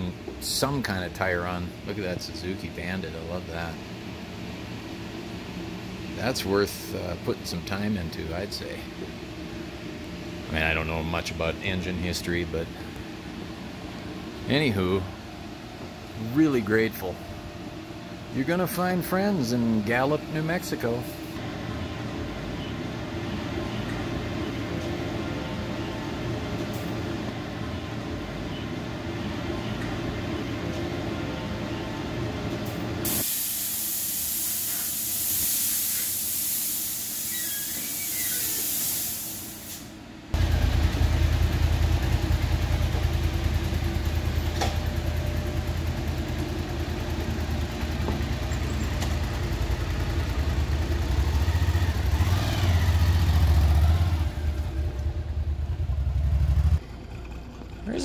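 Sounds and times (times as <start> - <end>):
mechanical hum: 0.0 - 58.0
loud air hissing: 33.0 - 40.0
motorcycle engine rumbling: 40.4 - 58.0.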